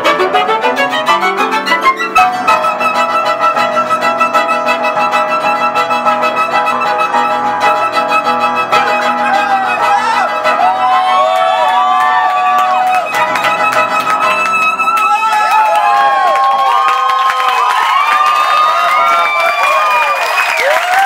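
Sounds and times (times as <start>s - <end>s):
violin: 0.0s - 16.5s
piano: 0.0s - 21.0s.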